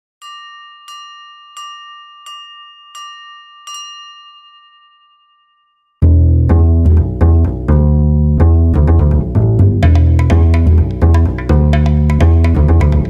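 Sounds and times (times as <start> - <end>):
bell-like chime: 0.2 - 6.0
loud music with plucked bass: 6.0 - 13.0.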